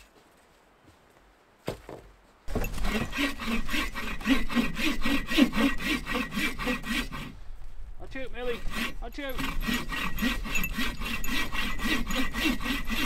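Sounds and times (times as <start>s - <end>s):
bow saw cutting log: 2.5s - 7.4s, 8.4s - 13.0s.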